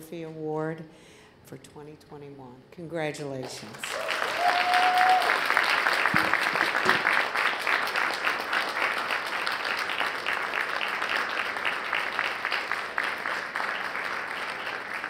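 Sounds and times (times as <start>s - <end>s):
audience applauding: 3.5s - 15.0s.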